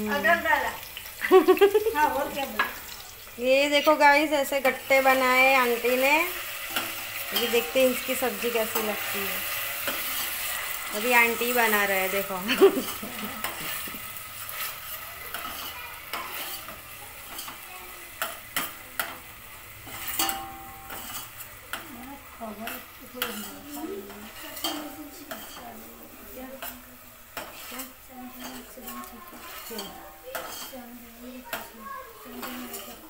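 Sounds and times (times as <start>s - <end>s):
food sizzling in pot: 0.0s - 33.0s
metal spoon scraping pot: 4.6s - 17.6s, 19.8s - 21.8s, 22.6s - 25.8s, 27.4s - 30.8s, 32.3s - 33.0s.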